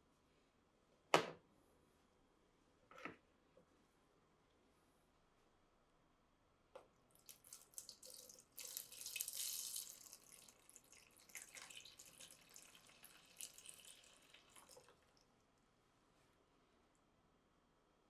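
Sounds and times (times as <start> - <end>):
liquid pouring and splashing: 7.1 - 15.3.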